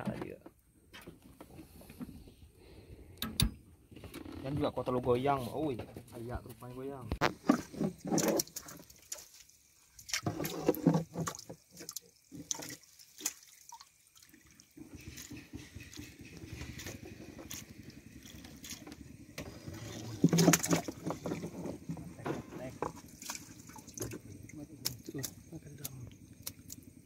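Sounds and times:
water sloshing: 7.2s - 27.0s
water splashing and dripping: 7.4s - 27.0s.

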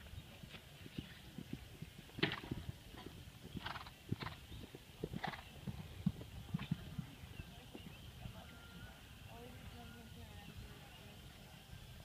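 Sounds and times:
horse hoofbeats on soft ground: 0.0s - 11.5s
horse blowing breaths: 2.2s - 7.2s.

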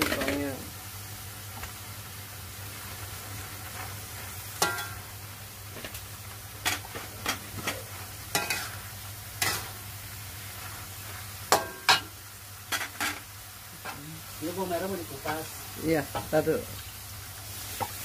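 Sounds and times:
metal spatula scraping a wok: 6.6s - 8.8s, 9.4s - 9.8s.

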